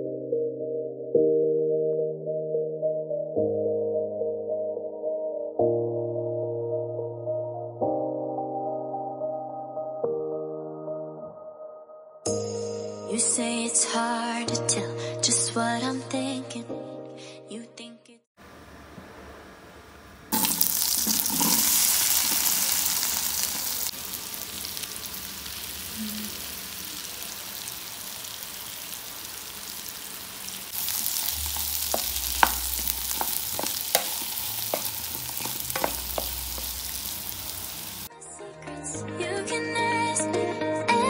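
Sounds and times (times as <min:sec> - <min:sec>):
potatoes sizzling in butter: 0:20.3 - 0:38.1
wooden spatula knocking and scraping: 0:30.8 - 0:37.7.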